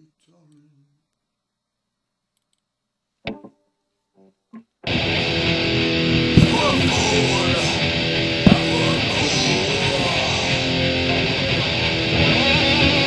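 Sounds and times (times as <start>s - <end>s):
distorted electric guitar: 3.3s - 3.5s, 4.6s - 13.0s
heavy metal music: 4.8s - 13.0s.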